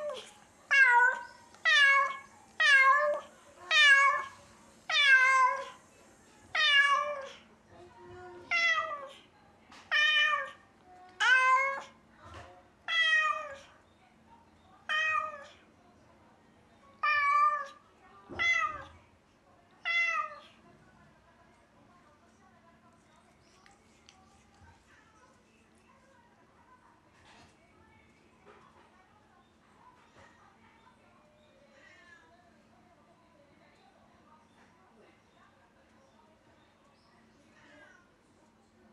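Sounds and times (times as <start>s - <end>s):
cat meowing: 0.0s - 5.8s, 6.6s - 7.3s, 19.8s - 20.4s.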